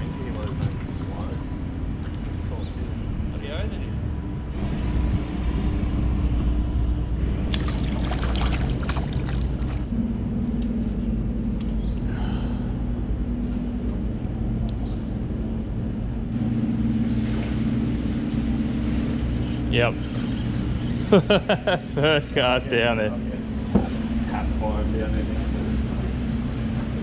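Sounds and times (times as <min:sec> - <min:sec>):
boat motor running: 0:00.0 - 0:27.0
water splashing: 0:07.4 - 0:09.9.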